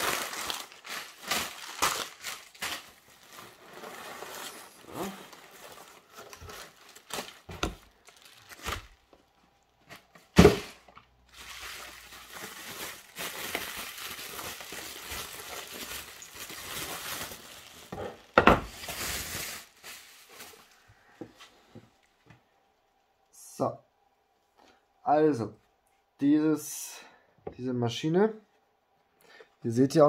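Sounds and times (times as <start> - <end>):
bubble wrap and paper crinkling: 0.0 - 21.1.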